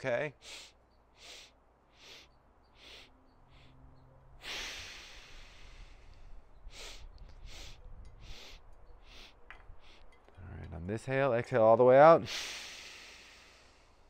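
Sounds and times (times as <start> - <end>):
man sniffing in through nose: 0.4 - 3.8, 4.4 - 6.1, 6.7 - 10.1, 12.3 - 13.9
man exhaling: 4.4 - 10.0, 12.2 - 14.0.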